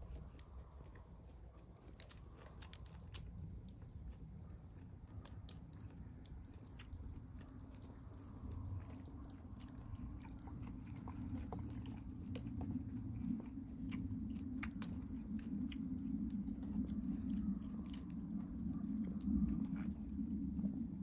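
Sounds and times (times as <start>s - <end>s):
fire low rumble: 0.0s - 21.0s
campfire crackling and popping: 14.0s - 17.1s.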